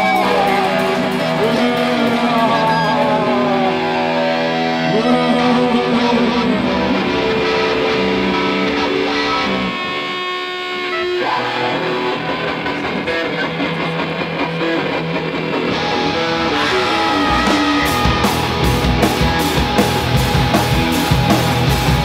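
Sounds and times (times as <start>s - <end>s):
drums playing a steady beat: 0.0s - 4.6s, 16.6s - 22.0s
bass guitar: 0.0s - 22.0s
electric guitar: 0.0s - 22.0s.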